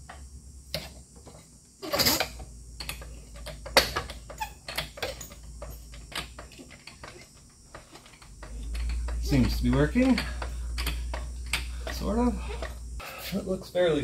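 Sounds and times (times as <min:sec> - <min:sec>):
floor jack clicking and clanking: 0:03.5 - 0:12.8.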